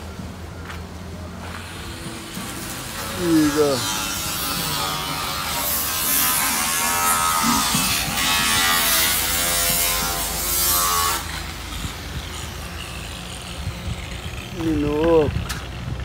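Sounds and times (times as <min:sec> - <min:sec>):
small power tool buzzing: 0:02.2 - 0:14.1.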